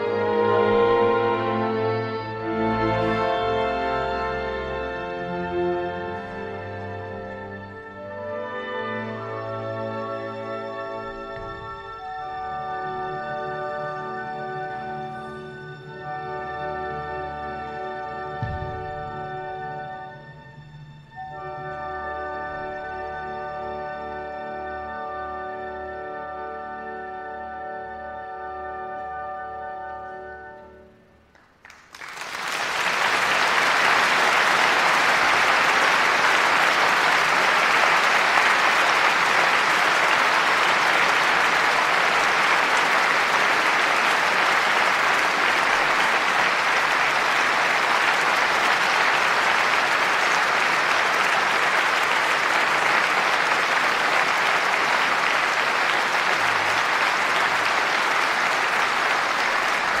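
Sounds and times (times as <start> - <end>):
audience applauding: 31.3 - 60.0.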